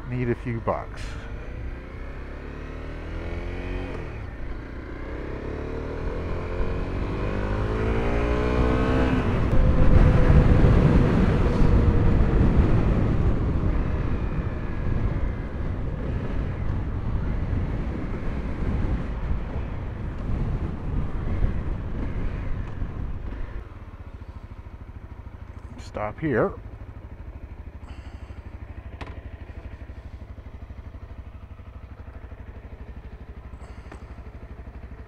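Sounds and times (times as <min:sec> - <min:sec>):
motorcycle engine accelerating: 0:00.0 - 0:35.0
wind on microphone: 0:09.2 - 0:23.6.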